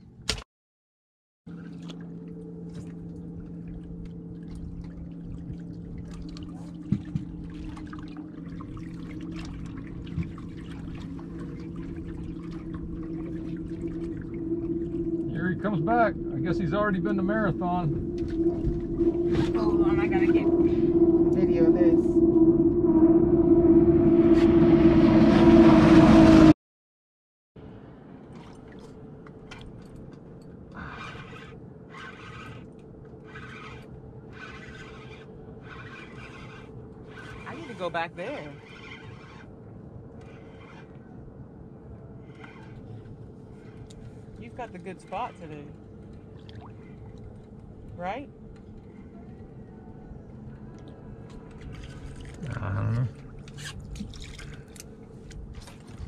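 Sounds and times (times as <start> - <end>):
water trickling and splashing: 1.5 - 20.7, 28.1 - 41.4, 42.1 - 49.6, 50.5 - 56.0
quiet steady hum: 1.5 - 22.7
steady low hum: 1.5 - 26.3, 27.6 - 56.0
loud engine drone: 1.5 - 26.6.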